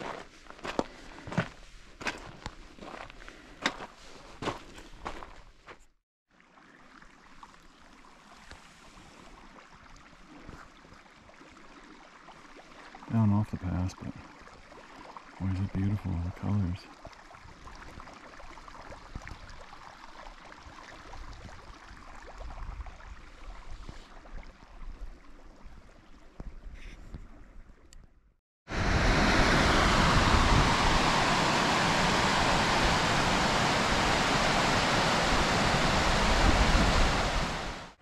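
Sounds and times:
fast-flowing water rushing: 0:28.7 - 0:38.0.

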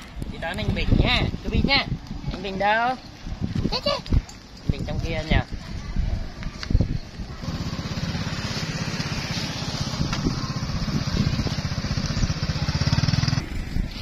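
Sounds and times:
small engine puttering: 0:07.4 - 0:14.0.

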